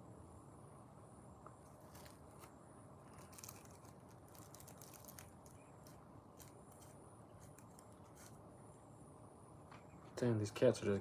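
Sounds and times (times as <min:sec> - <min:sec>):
faint ticks and rustles: 0:01.4 - 0:08.4.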